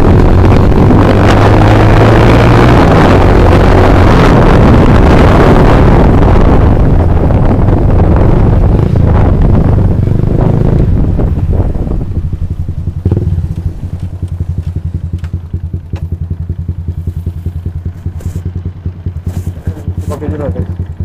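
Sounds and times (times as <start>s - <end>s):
wind rushing over microphone: 0.0s - 20.6s
scooter engine idling: 11.2s - 21.0s.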